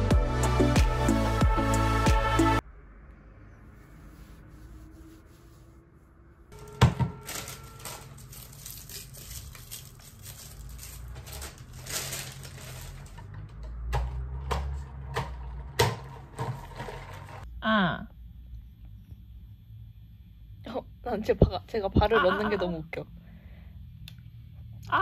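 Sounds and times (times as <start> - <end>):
plastic wrapping crinkling: 6.6 - 13.4.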